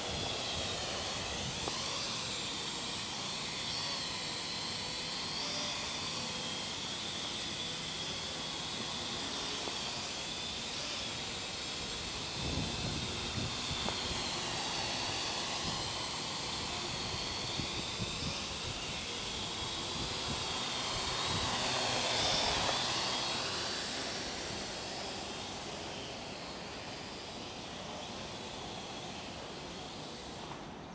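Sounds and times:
quadcopter drone whine: 0.0s - 30.9s.

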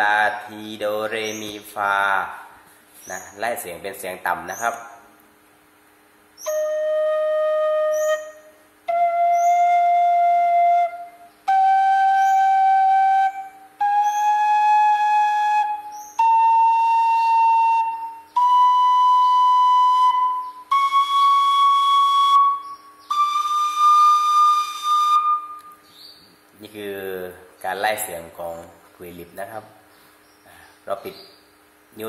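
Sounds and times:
flute playing rising scale: 6.4s - 25.7s.

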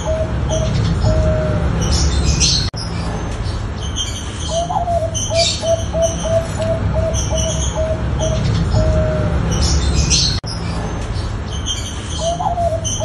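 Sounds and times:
dove cooing: 0.0s - 2.7s, 4.4s - 10.4s, 12.2s - 13.0s
small birds chirping: 0.0s - 13.0s
steady low hum: 0.0s - 13.0s.

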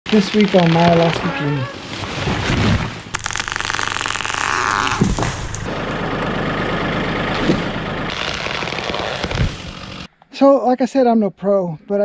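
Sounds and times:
sharp crack: 0.1s - 1.6s, 2.3s - 5.7s, 7.4s - 10.1s
heavy crashing of falling trees: 0.1s - 6.6s, 7.2s - 10.1s.

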